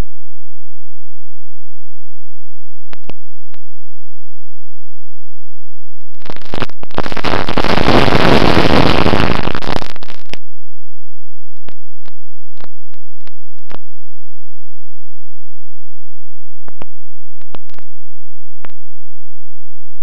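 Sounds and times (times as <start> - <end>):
faint clicks: 16.7 - 17.9.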